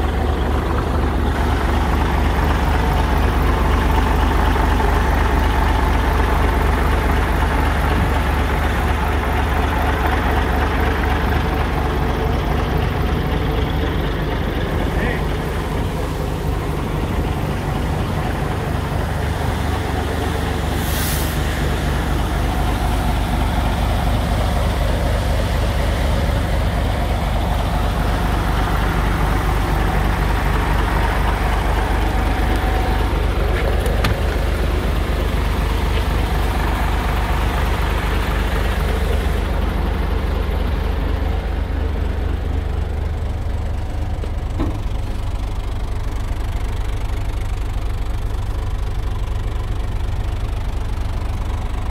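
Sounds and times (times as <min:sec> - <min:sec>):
diesel engine idling: 0:00.0 - 0:51.9
brief hiss: 0:20.8 - 0:21.6.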